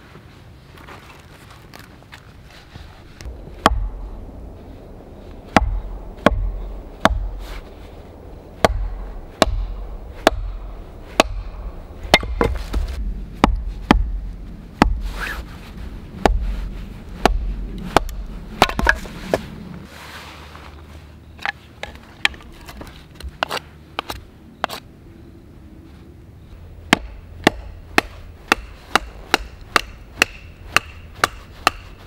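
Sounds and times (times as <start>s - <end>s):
hatchet striking wood on stump: 3.6s - 3.9s, 5.5s - 7.3s, 8.6s - 10.6s, 11.2s - 11.5s, 12.1s - 14.2s, 14.8s - 15.0s, 17.2s - 19.1s, 26.9s - 32.0s.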